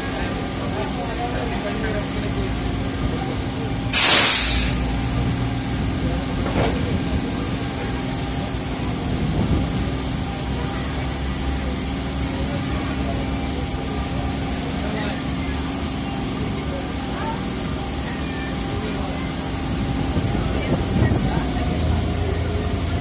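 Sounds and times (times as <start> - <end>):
train coaches rumbling past: 0.0 - 23.0
sharp hiss of air: 4.0 - 5.0.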